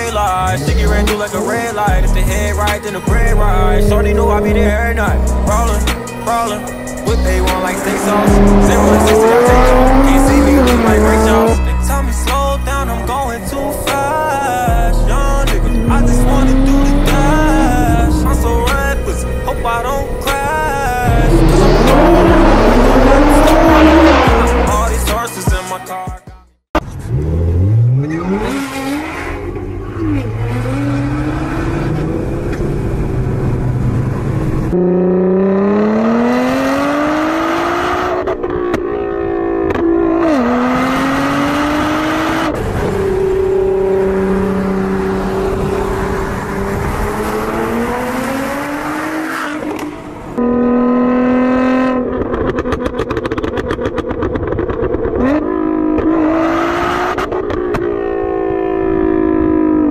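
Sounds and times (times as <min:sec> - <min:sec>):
car engine revving and accelerating: 0:00.0 - 0:25.3, 0:26.8 - 0:59.9.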